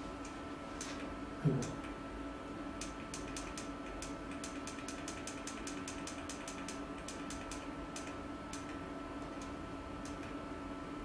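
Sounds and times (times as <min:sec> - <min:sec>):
electrical hum: 0:00.0 - 0:11.0
quick light clicks: 0:02.8 - 0:10.4.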